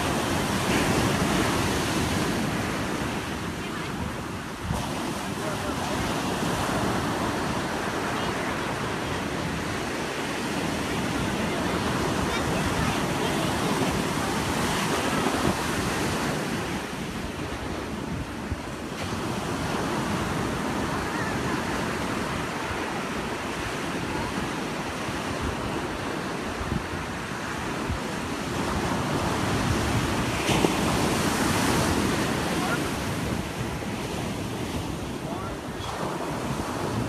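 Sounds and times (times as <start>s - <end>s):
ocean surf breaking: 0.0s - 37.0s
wind rumbling on microphone: 0.0s - 37.0s.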